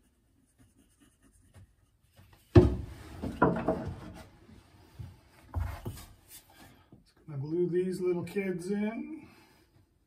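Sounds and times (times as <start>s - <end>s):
wood rubbing and light knocks: 1.4s - 6.8s.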